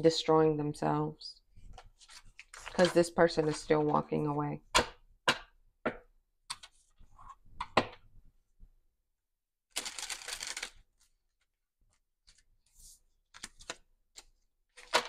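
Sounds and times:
cards rustling: 1.7s - 4.0s.

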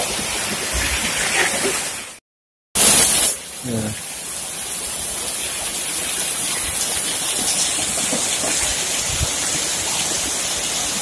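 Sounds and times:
heavy rain pouring: 2.8s - 11.0s.

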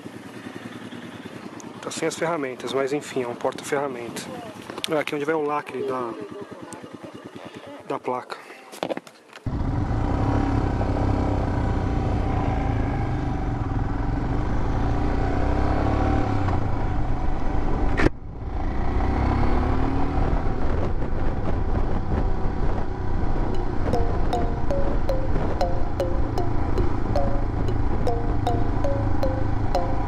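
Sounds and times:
electronic music: 23.6s - 30.0s.

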